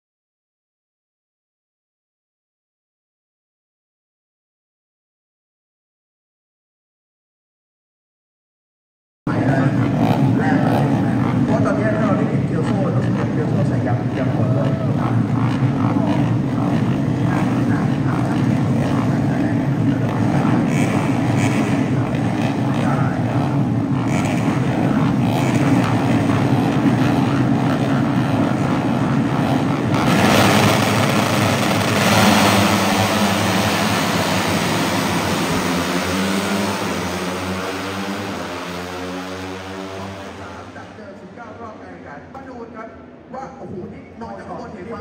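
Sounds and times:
racing motorcycle engines droning: 0:09.3 - 0:45.0
loud hissy engine sound: 0:09.4 - 0:42.2.

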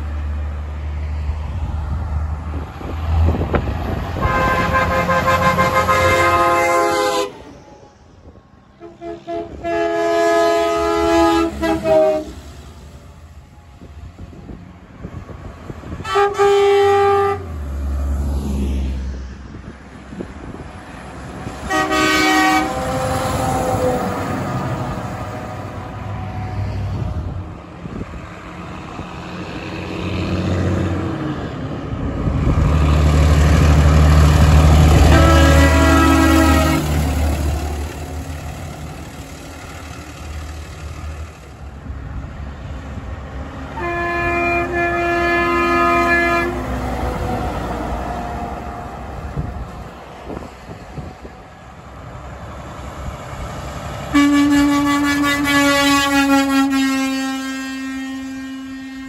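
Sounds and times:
diesel trucks passing: 0:00.0 - 0:59.0
chord air horn blasts: 0:04.2 - 0:07.8, 0:08.8 - 0:12.5, 0:16.0 - 0:17.6, 0:21.5 - 0:26.0, 0:34.6 - 0:38.2, 0:43.7 - 0:47.6, 0:54.1 - 0:59.0.

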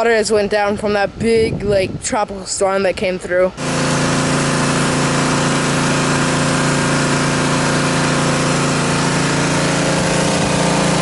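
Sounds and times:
pressure washer motor humming: 0:03.5 - 0:11.0
water spraying against brick wall: 0:03.6 - 0:11.0.

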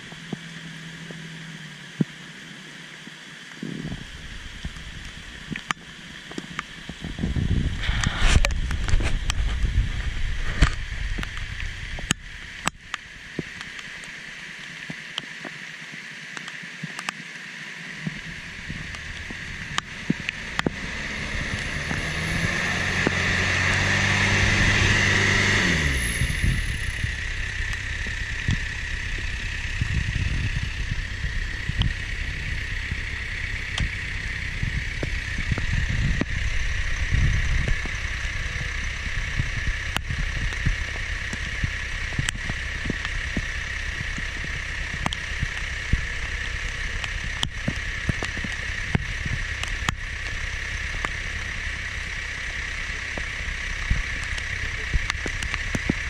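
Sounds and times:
truck engine revving: 0:18.2 - 0:56.0.

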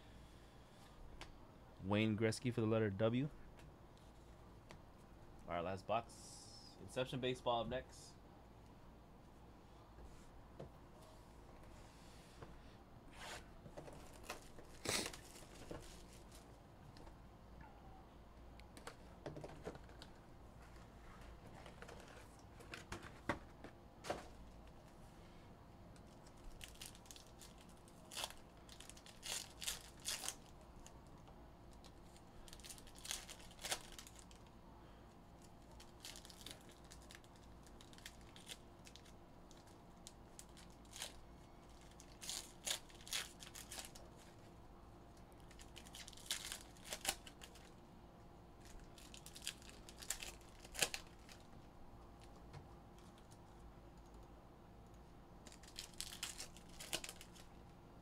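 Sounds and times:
foil packs torn and crinkled: 0:26.0 - 0:30.9, 0:31.8 - 0:34.5, 0:35.4 - 0:44.1, 0:45.4 - 0:47.8, 0:48.6 - 0:51.5, 0:55.4 - 0:57.5.

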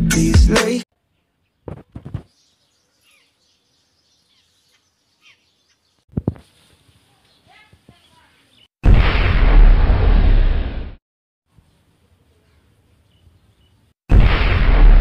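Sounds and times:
background music: 0:00.0 - 0:00.8
faint bird chirping: 0:01.0 - 0:08.7, 0:11.6 - 0:14.0.

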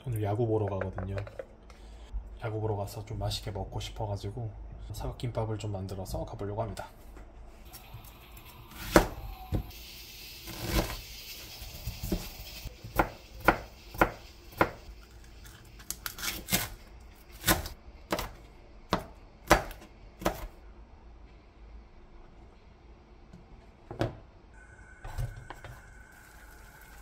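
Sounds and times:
knife chopping on cutting board: 0:12.9 - 0:14.8, 0:17.4 - 0:20.5.

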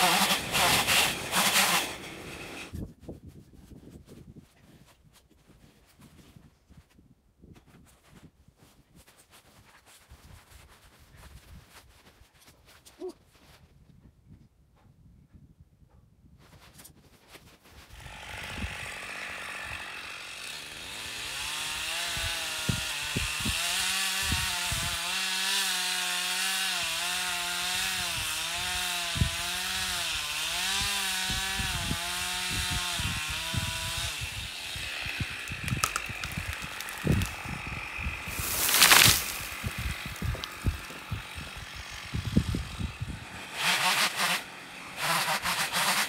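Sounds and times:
chainsaw cutting: 0:00.0 - 0:02.8, 0:17.9 - 0:46.0
wood cracks and knocks: 0:35.4 - 0:37.4, 0:38.4 - 0:41.0.

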